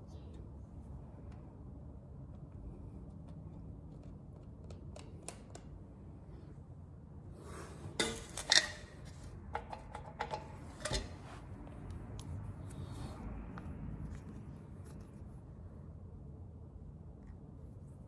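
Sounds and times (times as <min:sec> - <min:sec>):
faint rustling of handled parts: 0:07.5 - 0:15.7.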